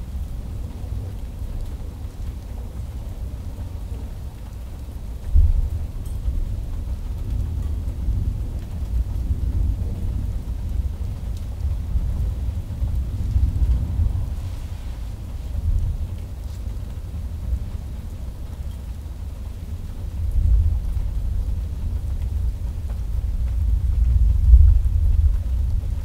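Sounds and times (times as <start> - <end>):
steady rain: 0.0 - 26.0
thunder booming and rumbling: 5.3 - 18.4, 20.1 - 26.0.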